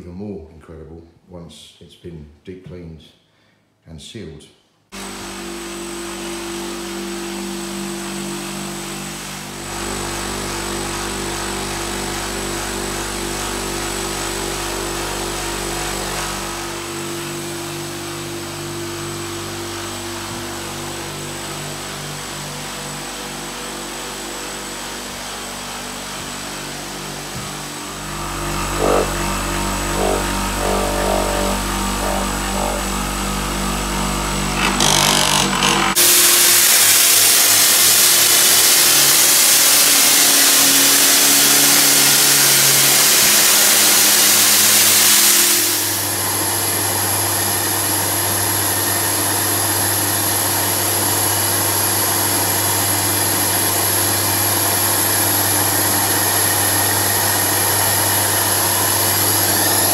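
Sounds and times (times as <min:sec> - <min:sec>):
machine hum with high whine: 0:05.0 - 0:47.9
floor scrubbing machine humming: 0:05.0 - 0:59.9
wet vacuum rushing: 0:27.7 - 0:33.8.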